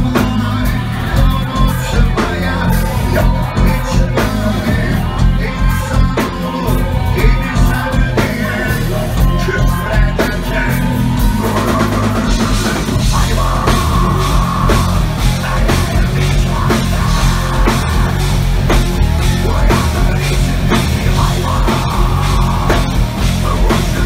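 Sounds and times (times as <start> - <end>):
electric guitars: 0.0 - 24.0
live heavy metal band: 0.0 - 24.0
person singing: 0.0 - 24.0
pounding drum kit: 0.0 - 24.0.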